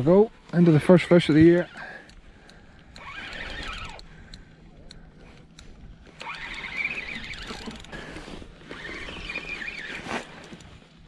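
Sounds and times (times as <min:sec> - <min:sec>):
fishing reel whirring: 0:01.6 - 0:04.5, 0:05.4 - 0:10.7.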